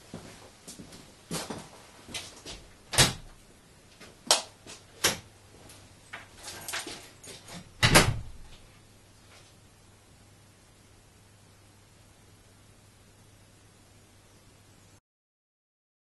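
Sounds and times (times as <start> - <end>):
footsteps: 0.1 - 2.7
door thudding shut: 2.9 - 3.3, 7.8 - 8.4
wooden door opening: 7.8 - 8.5.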